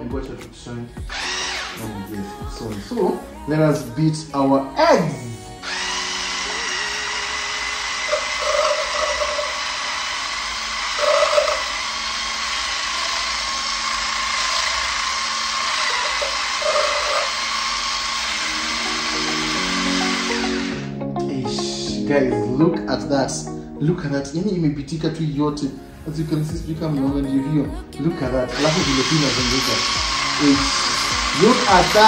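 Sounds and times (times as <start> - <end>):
hand blender whisking eggs: 1.0 - 3.2, 5.5 - 20.8, 28.4 - 32.0.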